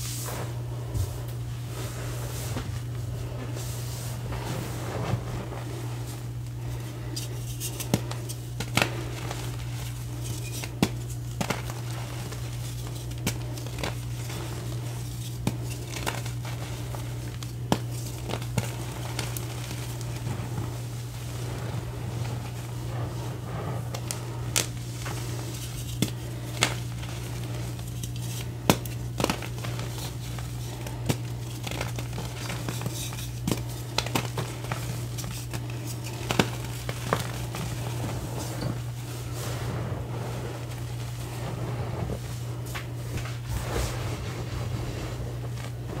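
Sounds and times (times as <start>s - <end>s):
steady low hum: 0.0s - 46.0s
hands crushing chalk: 7.1s - 22.7s, 23.9s - 38.7s.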